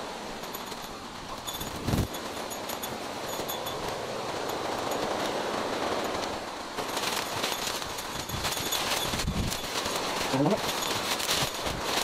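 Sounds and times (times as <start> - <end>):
undergrowth rustling and snapping: 4.4 - 12.0.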